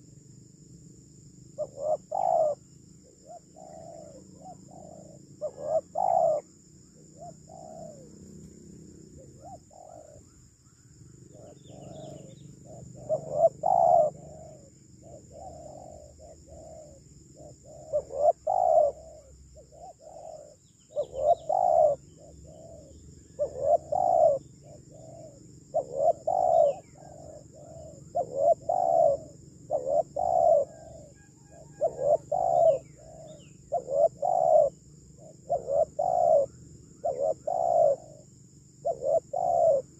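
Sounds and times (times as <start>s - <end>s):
dove cooing: 1.5s - 8.2s, 9.0s - 10.4s, 11.2s - 39.9s.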